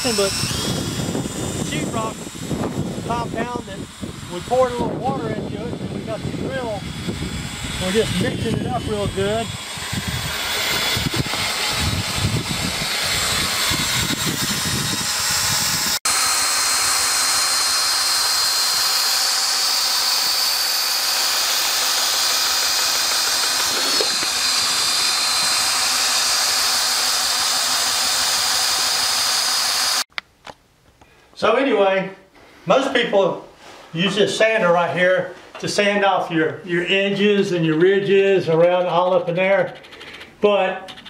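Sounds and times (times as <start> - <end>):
power drill mixing in bucket: 0.0 - 30.1.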